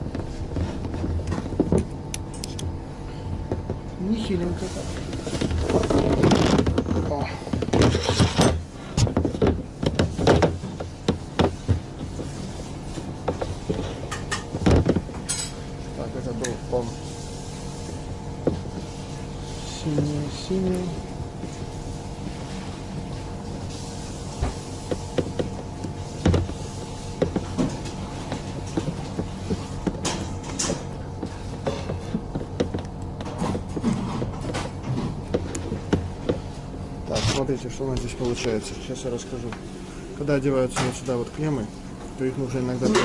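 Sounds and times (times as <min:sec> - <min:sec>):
steady hum: 0:00.0 - 0:43.0
wire terminals clicking: 0:01.8 - 0:02.7.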